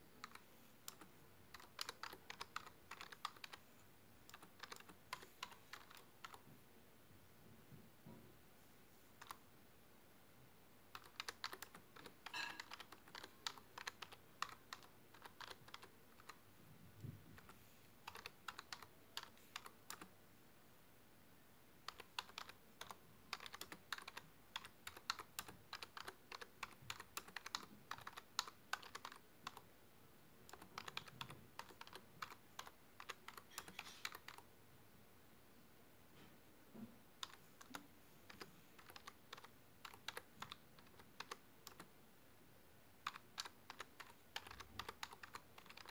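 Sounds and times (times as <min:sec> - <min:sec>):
typing on keyboard: 0:00.2 - 0:03.6, 0:04.3 - 0:06.4, 0:09.2 - 0:09.4, 0:10.9 - 0:16.4, 0:17.4 - 0:20.1, 0:21.8 - 0:29.7, 0:30.5 - 0:34.4, 0:37.2 - 0:41.9, 0:43.0 - 0:45.9.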